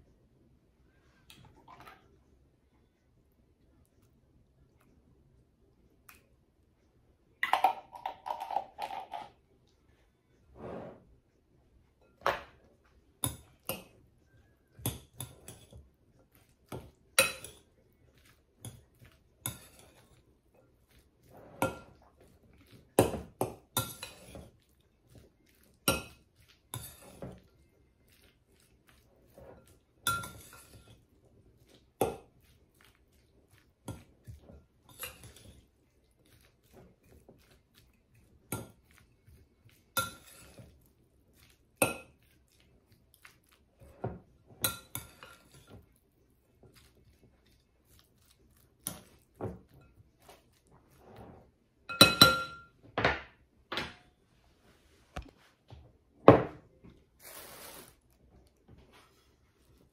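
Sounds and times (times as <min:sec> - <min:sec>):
fork clinking against glass bowl: 0:17.2 - 0:17.6, 0:30.0 - 0:30.9.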